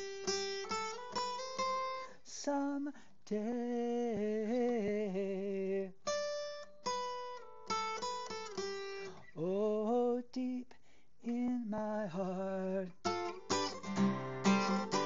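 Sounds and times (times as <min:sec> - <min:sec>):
acoustic guitar plucked notes: 0:00.0 - 0:02.1, 0:06.0 - 0:09.4, 0:12.7 - 0:15.0.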